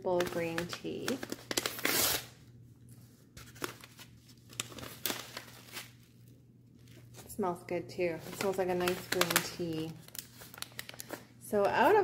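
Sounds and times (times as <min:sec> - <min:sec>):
paper crinkling: 0:00.1 - 0:02.3, 0:02.9 - 0:07.4, 0:08.1 - 0:12.0
paper tearing: 0:01.2 - 0:02.3.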